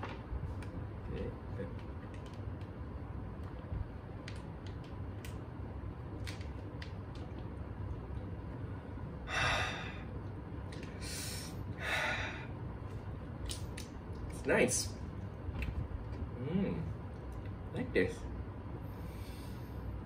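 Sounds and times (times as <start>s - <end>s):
person breathing out hard: 9.2s - 10.1s, 11.0s - 12.6s.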